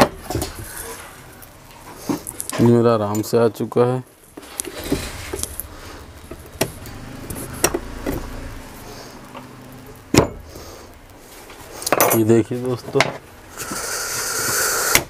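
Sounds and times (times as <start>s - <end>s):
low steady hum: 4.1s - 13.6s.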